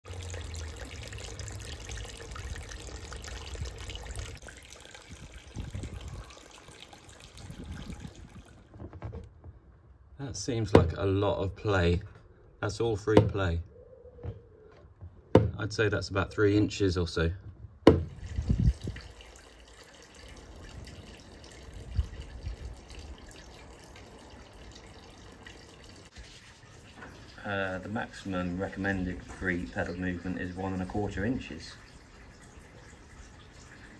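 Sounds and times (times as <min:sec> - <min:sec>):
fountain water trickling into pond: 0:00.0 - 0:08.7, 0:18.0 - 0:33.9.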